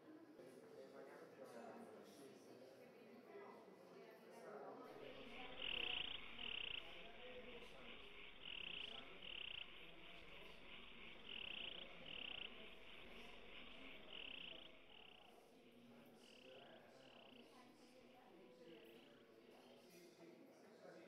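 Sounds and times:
faint low murmur: 4.6 - 21.0
steady high hiss: 5.0 - 17.3
high chirping: 5.0 - 18.0.

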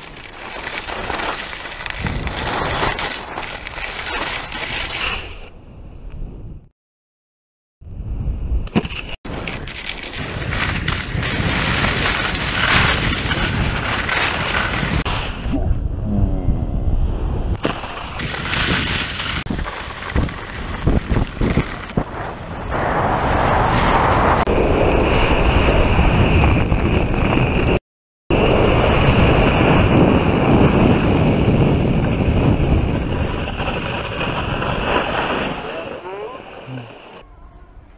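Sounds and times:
skis scraping over snow: 0.0 - 5.2, 9.3 - 15.1, 17.9 - 24.5, 32.9 - 37.2
wind buffeting microphone: 18.2 - 35.8.

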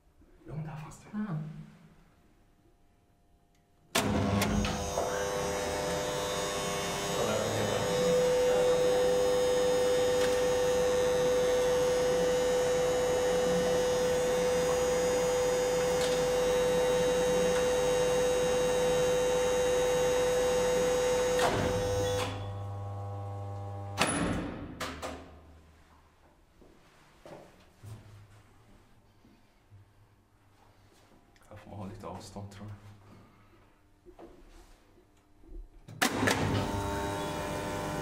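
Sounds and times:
elevator motor and gearing running: 3.9 - 24.1, 36.1 - 38.0
elevator machine clunk: 4.0 - 5.3
strong steady whine: 4.0 - 22.7.

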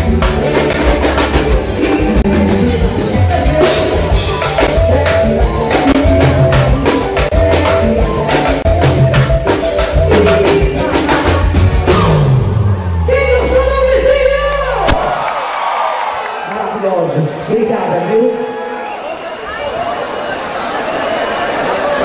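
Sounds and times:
steady drum beat: 0.0 - 12.5
bass line: 0.0 - 15.3
live band music: 0.0 - 15.3
woman singing: 9.8 - 12.2.

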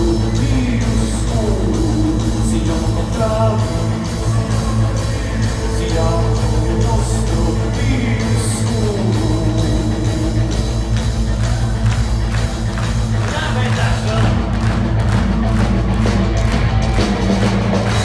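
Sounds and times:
person singing: 0.0 - 10.9
live rock band playing: 0.0 - 18.0.

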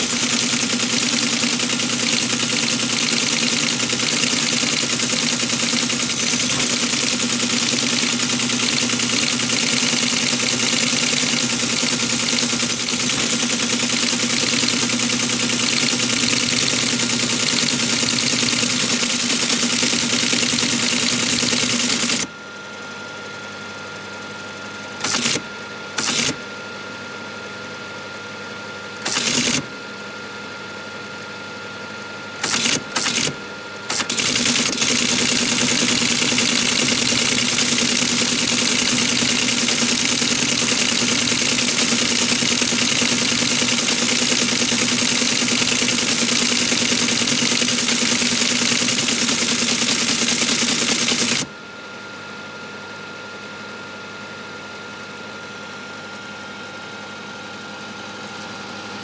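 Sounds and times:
teleprinter printing: 0.0 - 22.3, 25.0 - 26.4, 29.0 - 29.7, 32.4 - 51.5
teleprinter motor hum: 0.0 - 27.9, 28.8 - 51.7.

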